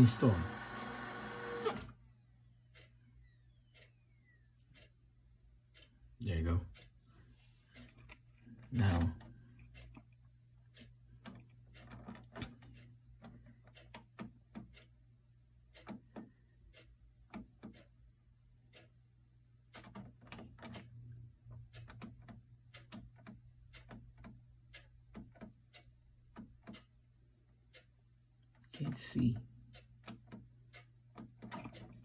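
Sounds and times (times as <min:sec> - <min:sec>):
printer buttons clicking: 0:19.8 - 0:20.9, 0:30.0 - 0:32.0.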